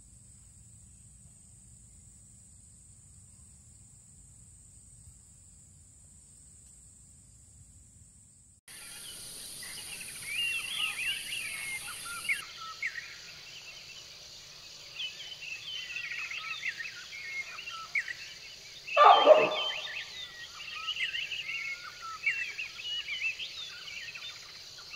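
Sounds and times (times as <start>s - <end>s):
small birds chirping: 8.7s - 24.9s
loud deep bird call: 18.9s - 20.2s.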